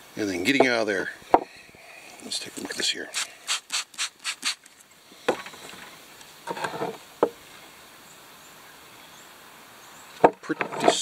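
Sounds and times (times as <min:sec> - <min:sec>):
spray bottle squirting: 0:03.1 - 0:04.8.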